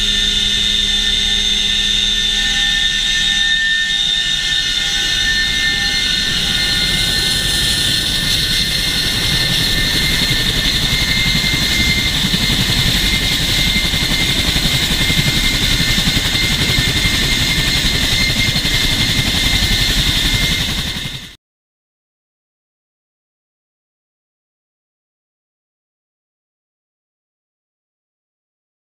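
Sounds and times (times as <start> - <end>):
helicopter rotors beating: 0.0 - 21.4
helicopter turbine whine: 0.0 - 21.4.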